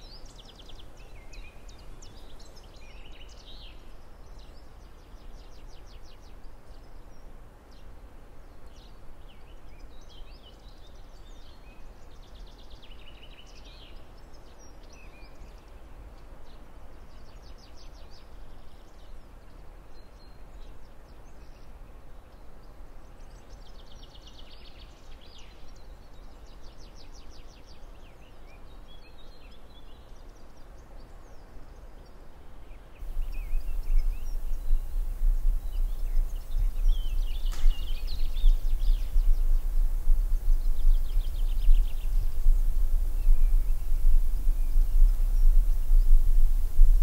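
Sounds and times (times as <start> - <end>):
small birds chirping and trilling: 33.0 - 47.0
steady low rumble: 33.0 - 47.0.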